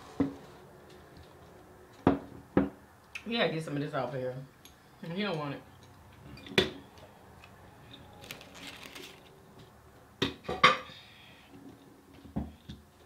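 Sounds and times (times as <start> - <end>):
paper wrapper rustle: 8.0 - 9.5.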